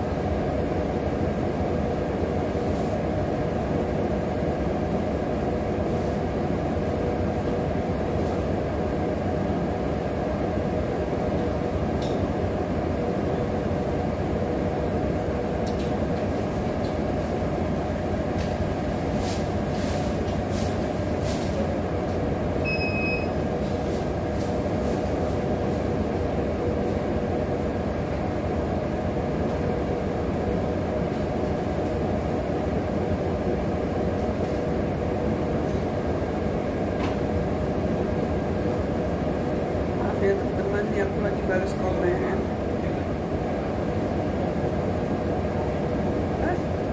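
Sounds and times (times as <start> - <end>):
constant hum: 0.0 - 46.9
short electronic beep: 22.6 - 23.4
rumbling background noise: 23.3 - 46.9.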